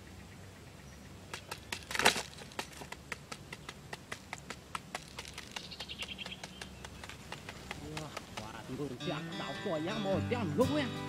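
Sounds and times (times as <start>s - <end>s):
bird pecking sharp taps: 1.3s - 8.8s.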